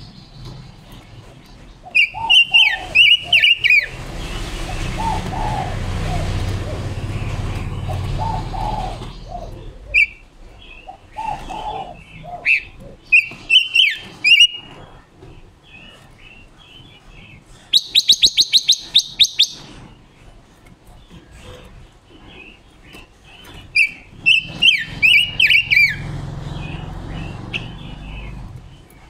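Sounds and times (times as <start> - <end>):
bird chirping and warbling: 0.0 - 29.0.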